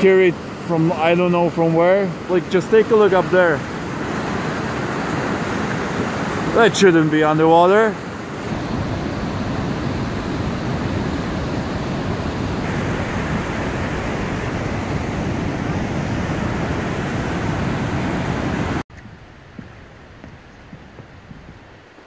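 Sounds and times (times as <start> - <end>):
creek rushing: 0.0 - 22.0
quiet forest background: 18.9 - 22.0.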